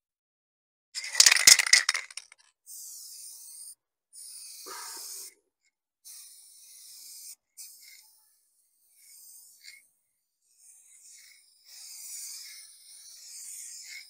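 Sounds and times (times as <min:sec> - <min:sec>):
spray can ball rattling: 0:01.0 - 0:02.4
spray paint can hissing: 0:01.0 - 0:05.3.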